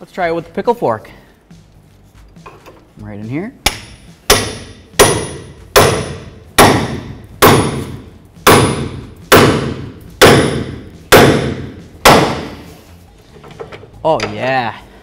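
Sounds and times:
hammer striking steel: 3.6s - 12.7s.

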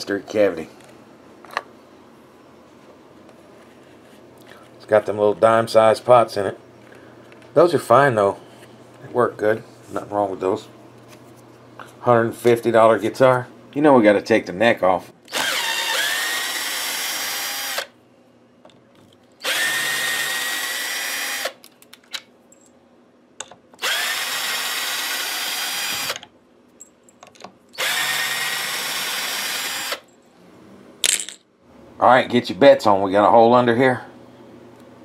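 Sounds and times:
power drill motor whine: 15.3s - 18.0s, 19.4s - 21.6s, 23.8s - 26.2s, 27.8s - 30.0s.

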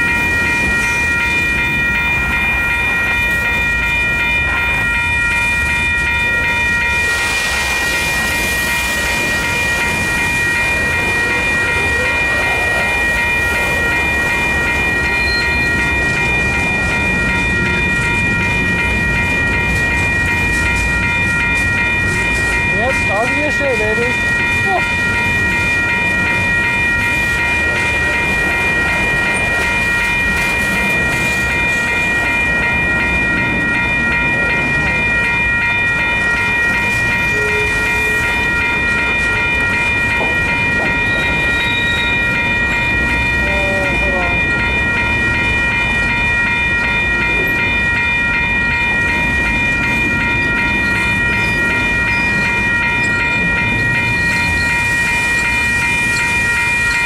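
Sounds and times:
high-pitched ringing tones: 0.0s - 57.0s
train wheels rumbling on rail: 0.0s - 57.0s.

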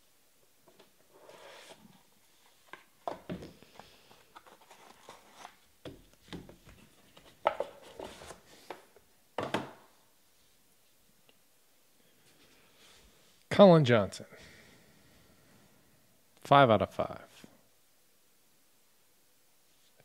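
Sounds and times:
cardboard and plastic rustling: 1.6s - 8.7s.

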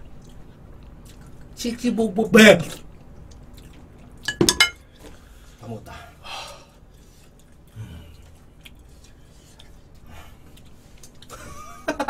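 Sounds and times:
faint low vocal sounds: 7.7s - 8.5s.

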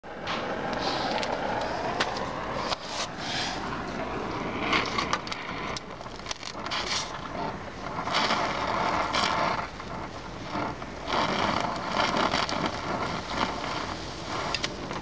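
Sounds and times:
clicks and crackles: 0.2s - 15.0s
welding torch flame hissing: 0.2s - 15.0s.

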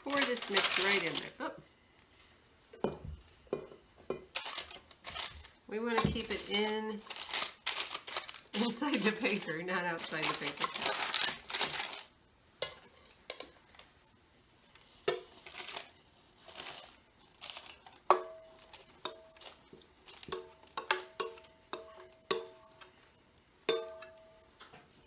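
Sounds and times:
paper rustling: 0.0s - 1.4s, 4.4s - 5.5s, 6.2s - 12.1s, 15.4s - 18.0s
spoon knocking metal bowl: 20.3s - 22.9s, 23.7s - 24.2s.

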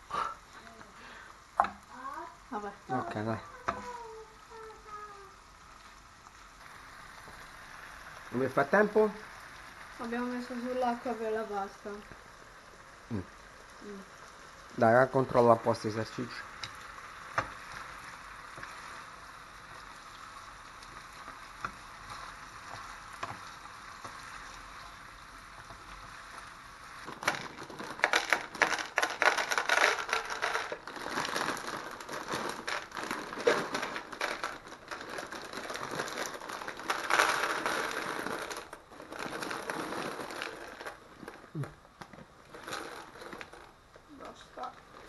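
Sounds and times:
sausage sizzling in a frying pan: 0.0s - 45.0s
plastic bag crinkling: 25.6s - 45.0s
dry pasta rattling into plastic bowl: 27.0s - 41.8s, 42.4s - 43.8s.

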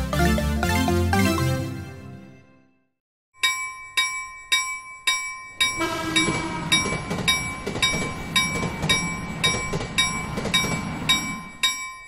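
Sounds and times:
music: 0.0s - 3.0s
railroad crossing bell clanging: 3.4s - 12.0s
train rumbling past: 5.6s - 12.0s.

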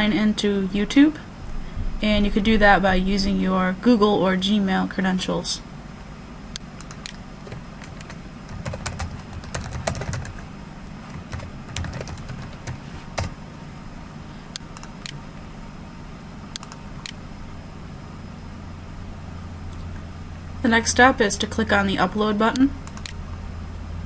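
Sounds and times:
low steady hum: 0.0s - 24.0s
computer keyboard keys clicking: 6.8s - 10.4s, 11.1s - 13.3s, 16.6s - 17.2s, 22.8s - 23.2s.

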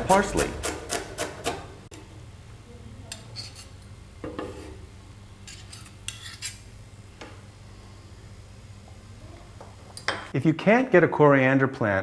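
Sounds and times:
knife scraping on wooden table: 3.1s - 4.8s, 5.4s - 6.7s.

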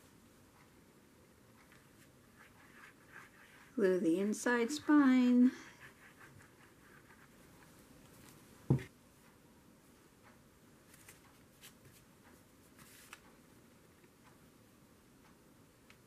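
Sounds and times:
cardstock and fabric rustling: 10.8s - 13.4s.

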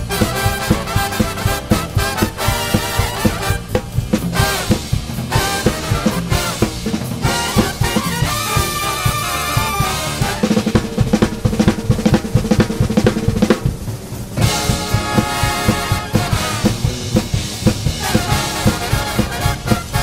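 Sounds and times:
big band brass section: 0.0s - 20.0s
drum kit played hard: 0.0s - 20.0s.

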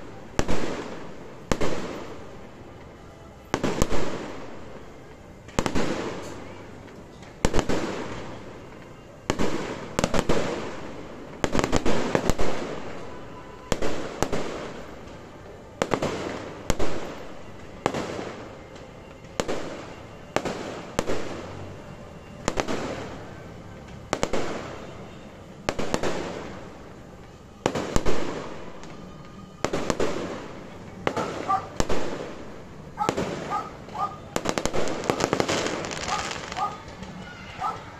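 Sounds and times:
firework shells bursting: 33.0s - 37.2s.

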